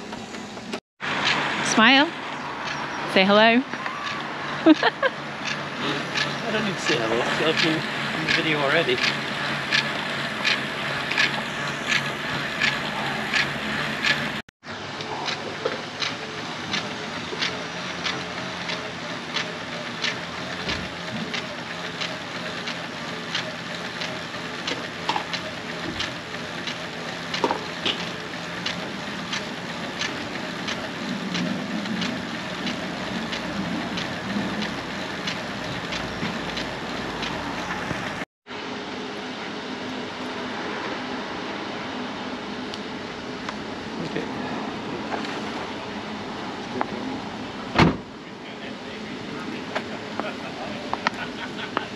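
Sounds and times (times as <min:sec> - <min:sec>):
bicycle trainer whirring: 0:00.0 - 0:51.9
regular ticking: 0:01.2 - 0:14.4, 0:15.3 - 0:38.2.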